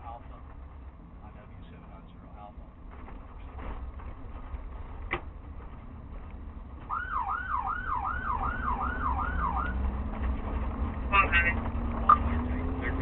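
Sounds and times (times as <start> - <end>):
vehicle rumbling on dirt road: 0.0 - 13.0
police siren yelping: 6.9 - 9.8.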